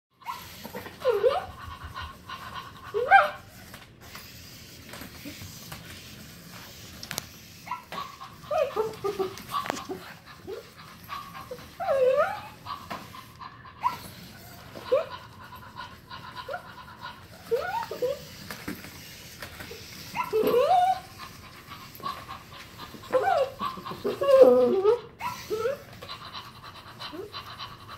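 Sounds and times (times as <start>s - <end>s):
dog yips and whines: 0.2s - 1.5s, 3.0s - 3.5s, 7.6s - 10.6s, 11.4s - 12.6s, 13.8s - 14.2s, 17.5s - 18.3s, 20.1s - 21.2s, 23.1s - 25.9s
dog panting and sniffing: 0.2s - 27.9s.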